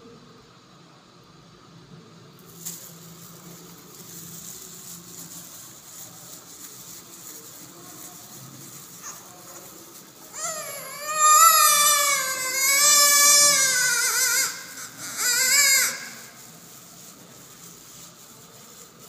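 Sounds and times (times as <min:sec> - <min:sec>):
faint steady hiss: 0:00.0 - 0:19.0
plastic glove crinkling: 0:02.4 - 0:19.0.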